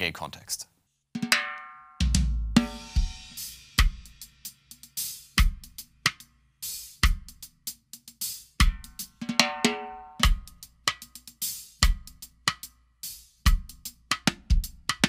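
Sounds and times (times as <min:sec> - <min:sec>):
high-pitched snare drum ringing: 0:09.3 - 0:10.4.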